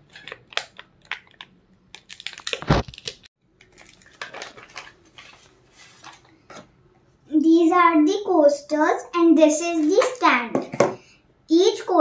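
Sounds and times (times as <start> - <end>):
plastic bag crinkling: 0.0 - 6.3.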